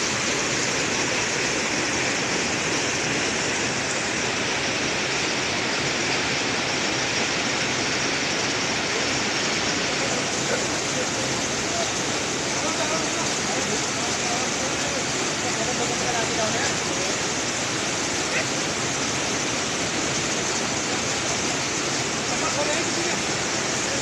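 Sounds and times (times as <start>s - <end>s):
waterfall rushing over boulders: 0.0s - 24.0s.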